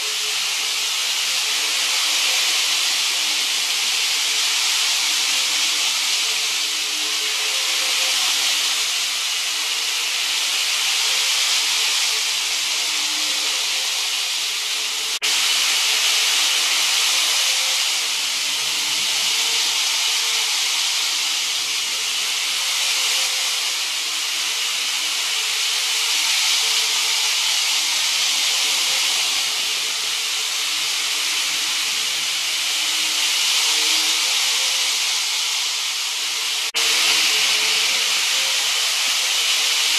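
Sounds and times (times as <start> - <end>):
model train whirring hiss: 0.0 - 39.9.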